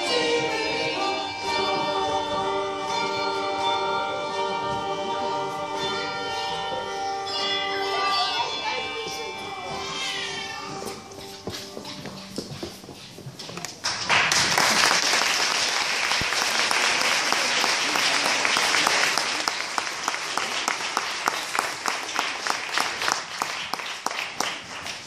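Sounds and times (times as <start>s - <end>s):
audience applauding: 13.8s - 25.0s.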